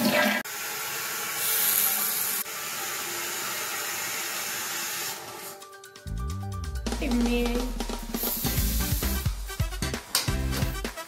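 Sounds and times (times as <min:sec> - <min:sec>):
toilet flushing and refilling: 0:00.0 - 0:05.6
bright water hiss: 0:01.3 - 0:03.4, 0:08.0 - 0:09.3.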